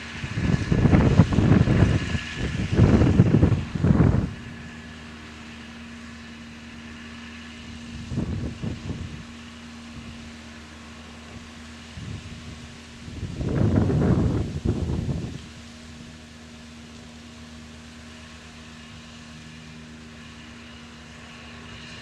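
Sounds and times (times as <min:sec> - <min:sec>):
wind buffeting microphone: 0:00.0 - 0:05.0, 0:07.7 - 0:10.3, 0:11.2 - 0:16.2
distant tractor engine running: 0:00.0 - 0:22.0.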